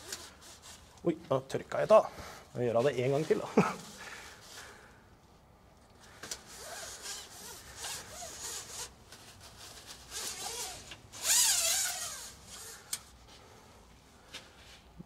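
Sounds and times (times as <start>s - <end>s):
paper towel rustling: 2.7s - 4.8s
scraping slide with wavering squeak: 6.5s - 8.9s, 9.7s - 12.8s.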